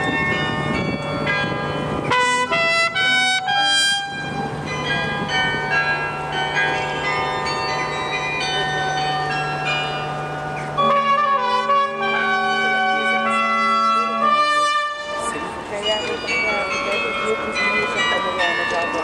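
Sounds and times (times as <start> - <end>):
carillon bells ringing: 0.0 - 19.0
trumpet playing: 2.1 - 4.3, 10.8 - 15.4.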